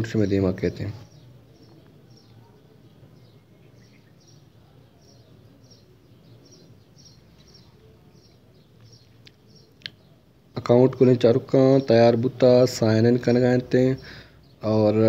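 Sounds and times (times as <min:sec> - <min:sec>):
faint bird chirping: 0:00.0 - 0:15.0.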